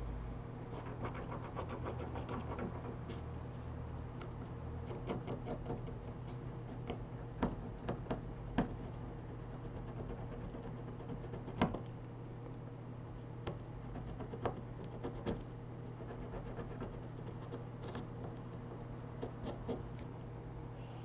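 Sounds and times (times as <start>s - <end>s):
low electrical hum: 0.0s - 21.0s.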